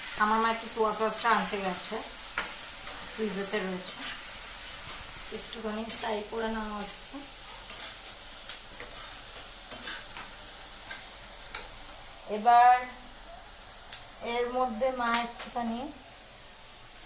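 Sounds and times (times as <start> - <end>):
food sizzling in a wok: 0.0 - 17.0
spatula tapping and scraping pan: 2.4 - 3.1, 4.8 - 5.1, 5.8 - 6.1, 6.8 - 11.8.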